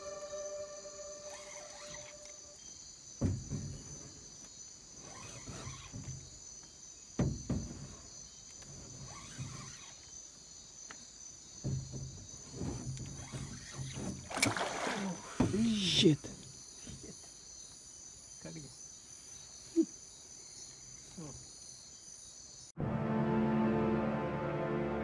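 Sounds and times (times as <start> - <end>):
crickets chirring: 0.0 - 22.8
low knocks: 3.2 - 4.2.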